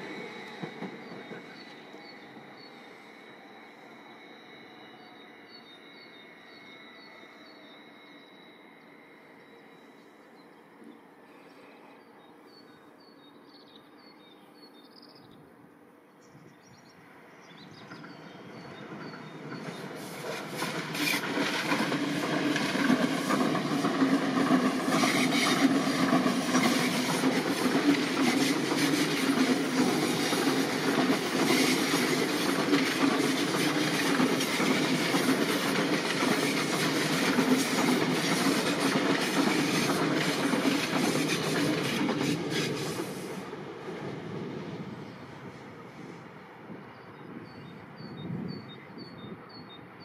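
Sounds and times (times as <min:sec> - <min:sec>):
train wheels clicking on track: 0:00.0 - 0:02.7, 0:17.5 - 0:45.9.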